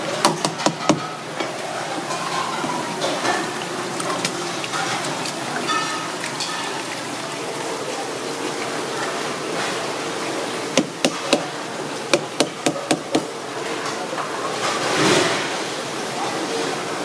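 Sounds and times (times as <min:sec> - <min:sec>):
water sloshing in plastic bowl: 0:01.4 - 0:11.6.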